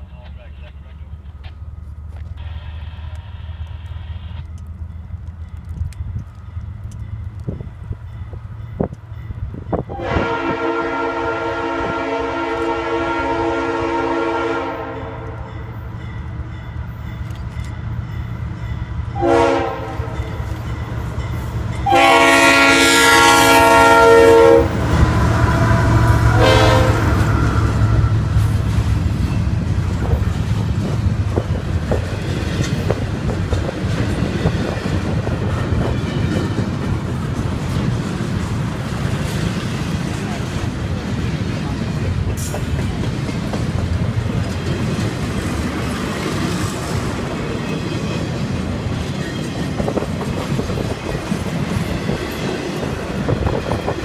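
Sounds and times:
locomotive engine passing: 0.0 - 54.0
train wheels clattering on rail: 4.4 - 10.6, 15.2 - 22.4, 26.0 - 54.0
locomotive air horn blasts: 9.9 - 15.6, 19.1 - 20.3, 21.8 - 28.4.

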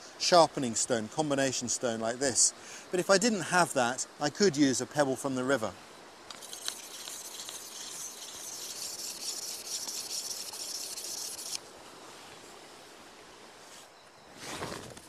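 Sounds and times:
forest ambience: 0.0 - 15.0
insects buzzing: 5.7 - 15.0.

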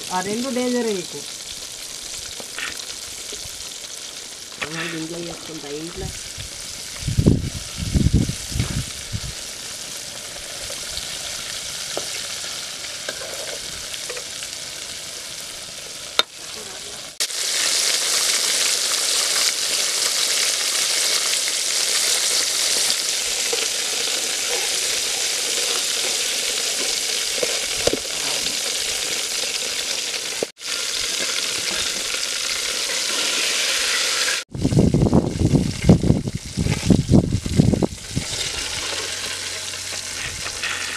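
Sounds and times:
oil sizzling deep-frying: 0.0 - 40.9.

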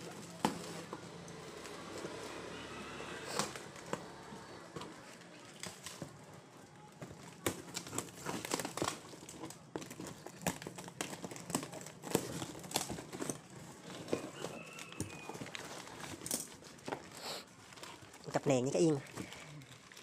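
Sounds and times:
cardboard and tape tearing: 7.0 - 20.0
scissors cutting packing tape: 7.4 - 13.9.

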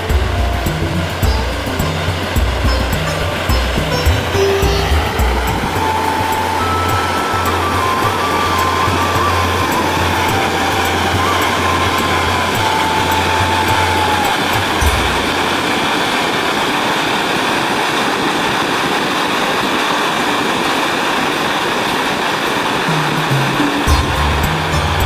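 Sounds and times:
low hum: 0.0 - 16.8
faint wavering tone: 0.0 - 22.0
firework fountain hissing: 0.0 - 25.0.

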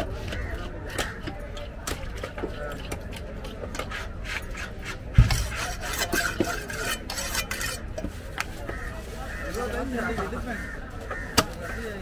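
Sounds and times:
knife scraping on sharpening steel: 3.8 - 7.9
heavy thump: 5.1 - 5.6.

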